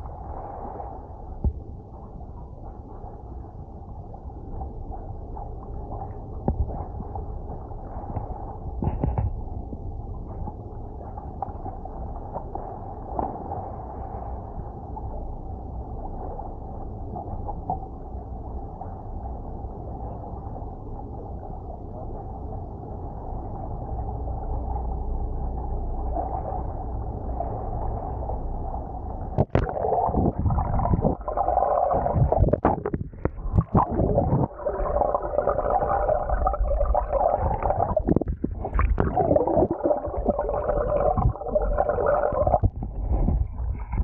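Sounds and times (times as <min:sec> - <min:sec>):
underwater engine and propeller: 0:00.0 - 0:44.0
water splashing and bubbling: 0:29.3 - 0:44.0.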